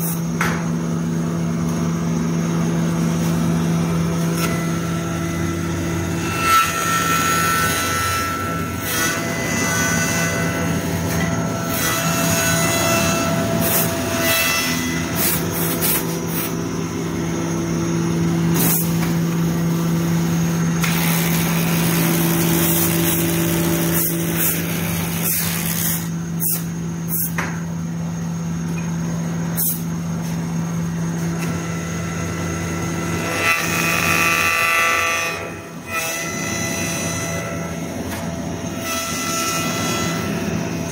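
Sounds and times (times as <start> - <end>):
wood lathe motor hum: 19.2 - 26.2.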